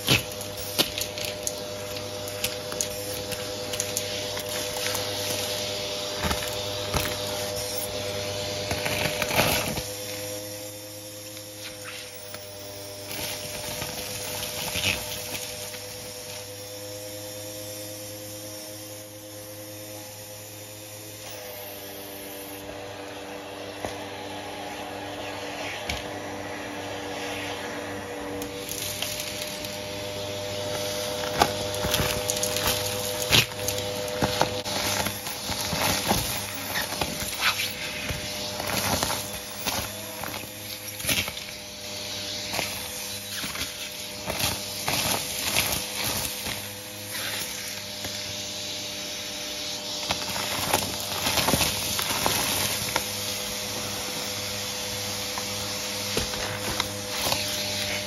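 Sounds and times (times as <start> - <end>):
debris crackling up hose: 0.0 - 19.1, 27.9 - 58.0
vacuum cleaner motor hum: 0.0 - 58.0.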